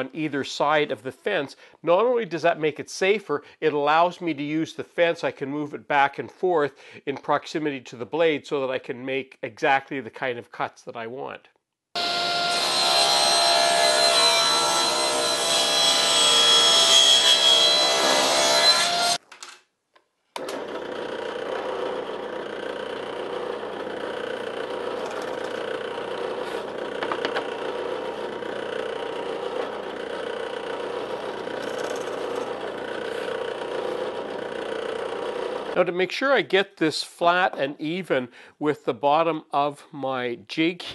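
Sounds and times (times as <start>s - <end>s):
table saw cutting a board: 12.0s - 19.2s, 20.4s - 35.8s
drill press drilling into wood: 20.4s - 35.8s.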